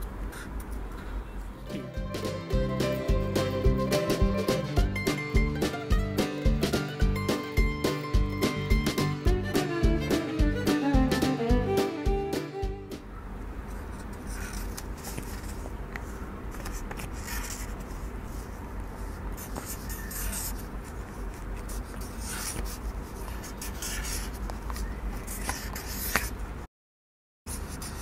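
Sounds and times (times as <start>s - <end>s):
marker scratching on card paper: 16.6s - 26.4s, 27.5s - 28.0s.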